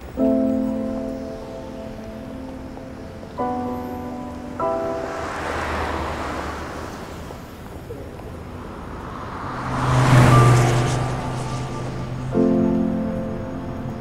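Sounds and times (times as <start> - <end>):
car passing with rushing sound: 3.5 - 14.0.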